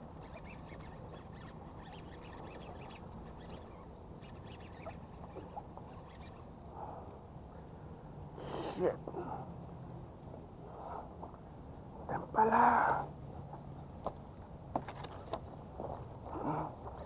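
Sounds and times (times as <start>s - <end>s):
faint high chirping: 0.2s - 6.5s.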